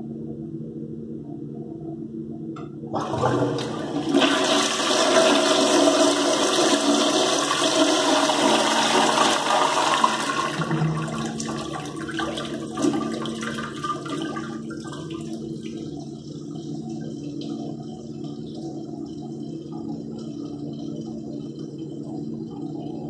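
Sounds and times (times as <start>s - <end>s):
toilet flushing: 3.0s - 18.4s.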